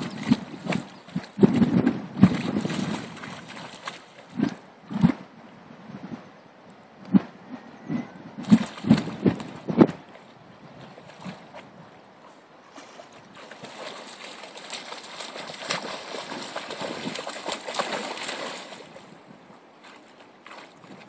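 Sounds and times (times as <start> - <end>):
dog splashing through water: 0.0 - 4.6, 8.4 - 19.2, 19.8 - 21.0.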